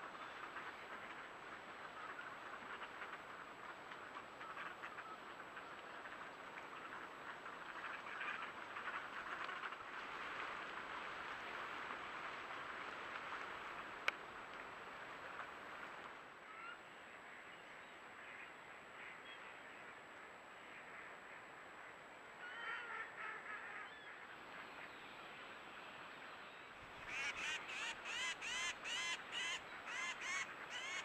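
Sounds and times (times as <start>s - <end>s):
ducks quacking: 0.3s - 9.8s, 27.0s - 31.0s.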